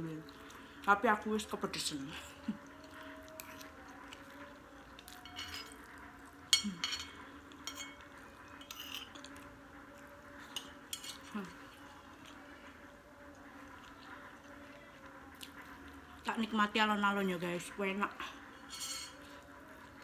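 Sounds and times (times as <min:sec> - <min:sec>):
metal spoon scraping a plate: 0:05.2 - 0:05.9, 0:06.5 - 0:09.4, 0:10.5 - 0:11.3, 0:18.6 - 0:19.3.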